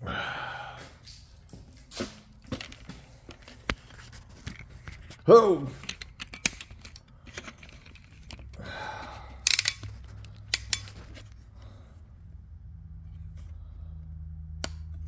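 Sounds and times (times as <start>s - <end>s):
steady low hum: 0.0s - 15.0s
tools clicking and clanking: 1.0s - 11.4s.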